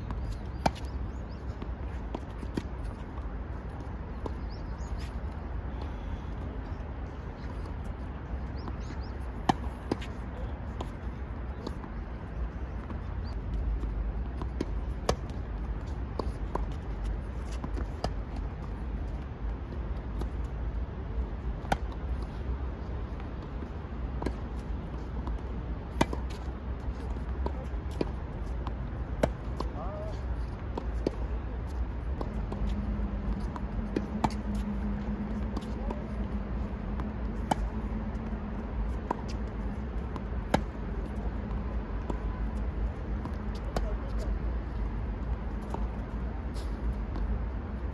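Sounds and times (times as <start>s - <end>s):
steady low rumble: 0.0s - 47.9s
tennis balls struck and bouncing: 0.0s - 47.9s
tennis ball hit by rackets: 24.2s - 26.5s, 37.3s - 38.4s, 40.2s - 40.8s.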